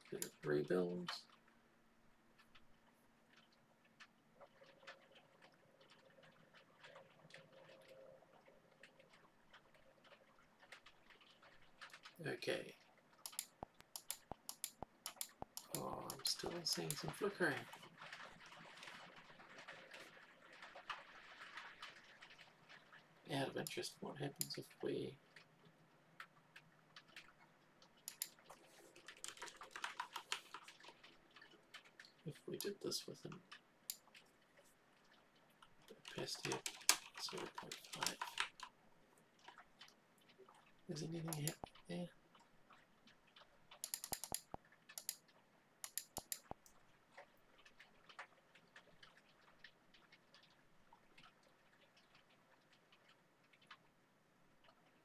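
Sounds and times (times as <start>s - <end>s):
typing on computer keyboard: 13.2s - 15.9s, 28.1s - 31.5s, 36.1s - 38.7s, 43.7s - 45.2s, 45.8s - 46.7s.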